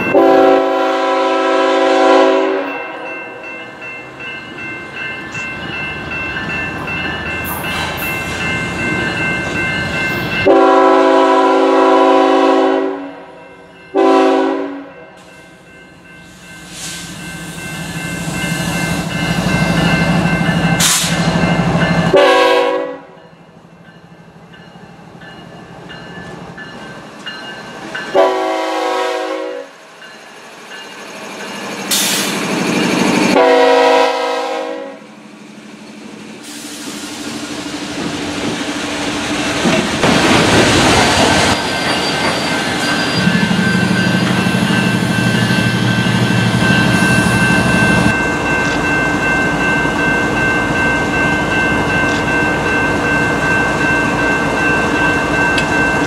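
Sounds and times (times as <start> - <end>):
locomotive air horn blasts: 0.1 - 3.0, 10.4 - 13.4, 14.0 - 14.9, 22.1 - 23.2, 28.2 - 29.7, 33.3 - 35.1.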